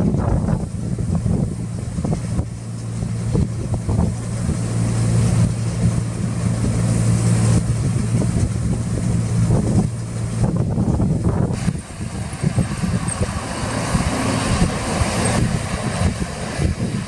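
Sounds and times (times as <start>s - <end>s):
combine harvester engine drone: 0.0s - 17.0s
grain auger hiss: 11.5s - 17.0s.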